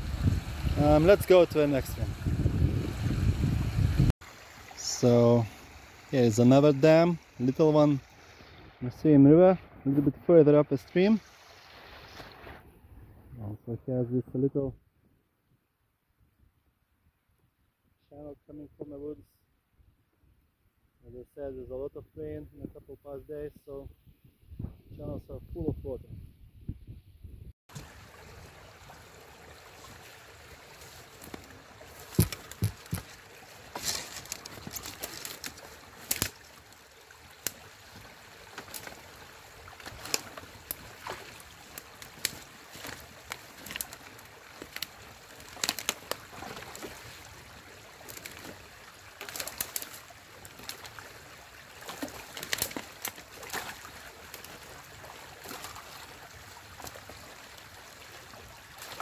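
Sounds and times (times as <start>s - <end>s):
stream water gurgling: 0.0s - 12.8s, 27.7s - 59.0s
splashes and knocks of raking: 10.9s - 12.7s, 27.7s - 59.0s.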